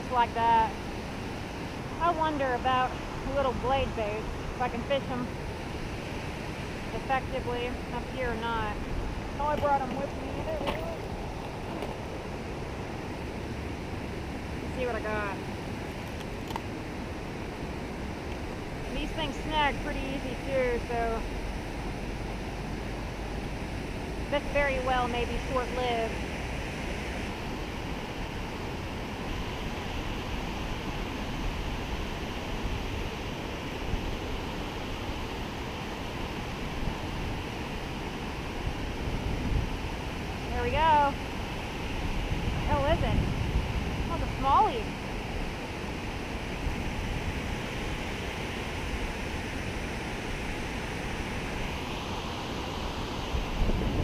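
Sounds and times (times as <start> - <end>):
wind rumbling on microphone: 0.0 - 54.0
river water rushing over a dam: 0.4 - 54.0.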